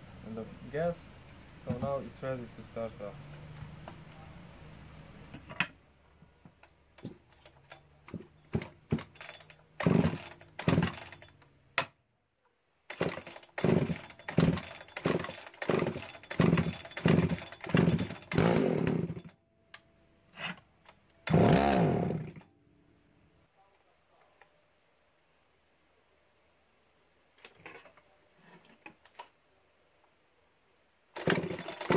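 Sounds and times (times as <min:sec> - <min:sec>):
chainsaw pull-start attempts: 0:07.0 - 0:11.5, 0:12.9 - 0:19.4, 0:21.2 - 0:22.5, 0:31.1 - 0:31.9.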